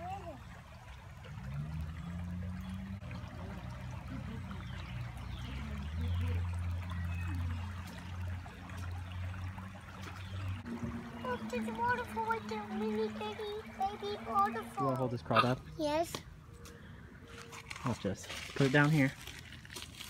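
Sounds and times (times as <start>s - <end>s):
low steady rumble: 0.0s - 15.0s
creek water trickling: 0.0s - 20.0s.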